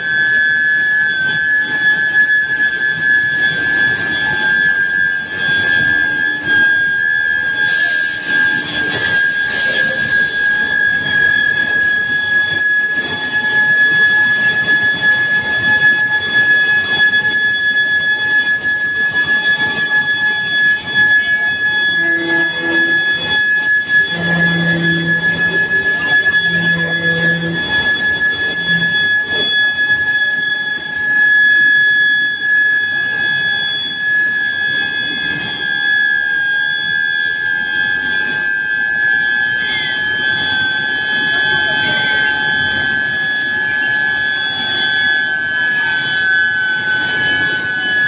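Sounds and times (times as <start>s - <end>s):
high-pitched induction coil whine: 0.0s - 48.0s
low rumble of machinery: 19.5s - 29.9s.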